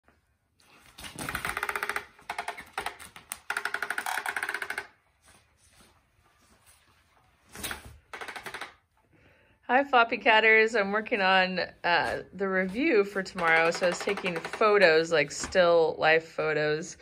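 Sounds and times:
toy motor whirring and rattling: 1.3s - 4.9s.

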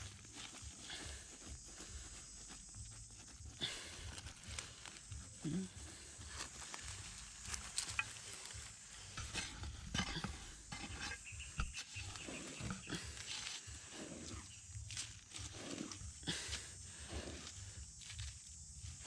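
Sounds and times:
dirt and grit rattling: 0.0s - 19.0s
metal blade scraping stony soil: 6.8s - 16.0s.

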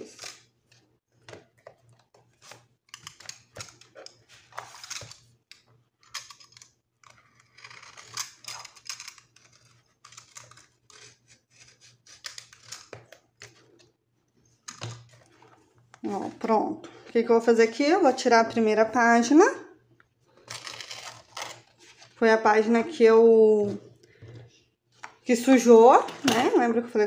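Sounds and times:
knife cutting through paper: 7.0s - 13.0s.

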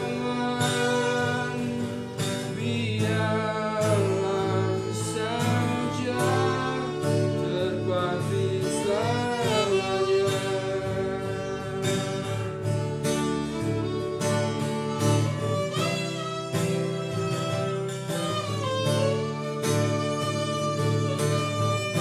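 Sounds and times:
person singing: 0.0s - 17.6s
plucked string instrument: 0.0s - 22.0s.

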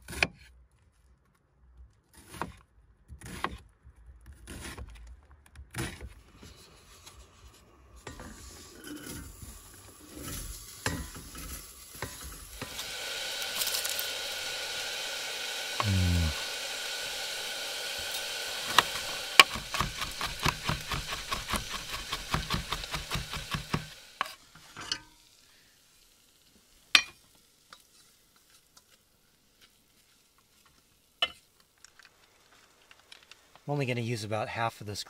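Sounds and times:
food sizzling in a pot: 6.3s - 33.6s
fast scraping of stirring: 18.7s - 23.9s.

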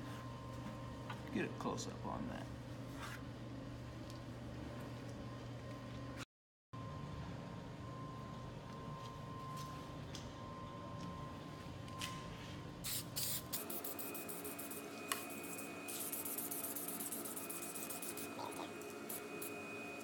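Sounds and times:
aerosol spray can hissing: 12.9s - 18.4s.

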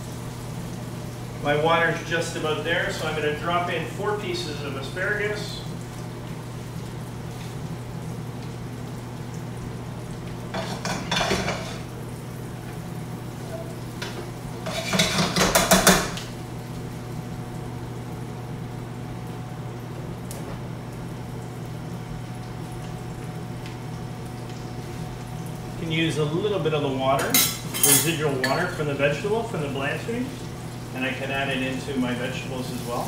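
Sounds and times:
steady low hum: 0.0s - 33.0s
pan and utensils clattering: 10.5s - 11.9s, 13.5s - 16.2s, 27.2s - 28.8s.

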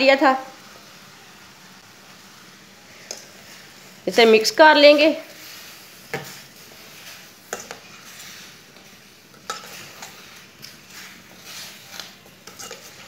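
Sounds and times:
faint sizzle: 0.0s - 13.0s
spoon scraping in pan: 2.9s - 4.0s, 5.2s - 13.0s.

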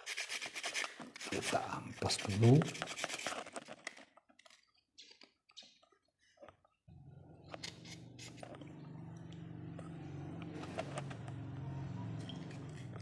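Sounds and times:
small parts clicking and scraping: 2.4s - 5.8s, 7.5s - 8.7s, 12.2s - 13.0s.

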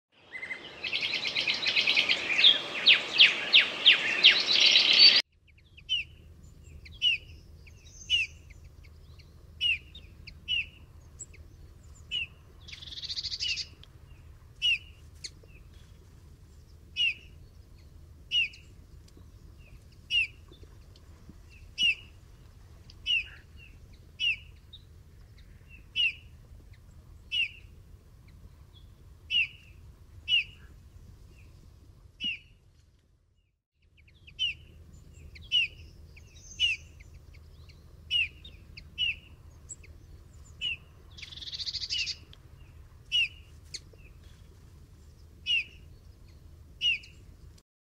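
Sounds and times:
bullfinch calling: 0.3s - 5.2s, 12.1s - 13.8s, 21.7s - 22.2s, 23.0s - 23.6s, 35.3s - 39.9s, 40.6s - 42.3s, 43.1s - 43.9s, 45.4s - 45.8s, 46.8s - 47.2s.

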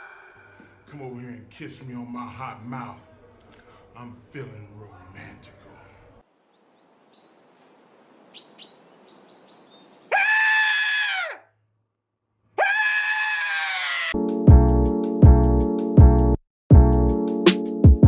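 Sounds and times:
loud high screams: 0.0s - 0.6s, 10.1s - 11.5s, 12.6s - 14.2s
faint background hiss: 0.5s - 10.1s
music with heavy beat: 14.3s - 18.0s.

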